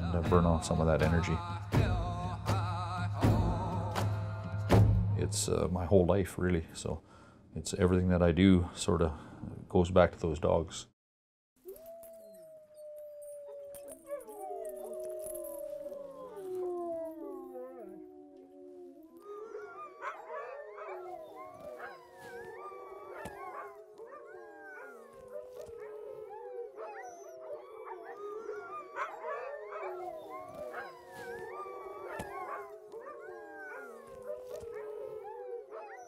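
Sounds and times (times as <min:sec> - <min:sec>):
dogs howling in chorus: 0:11.6 - 0:36.0.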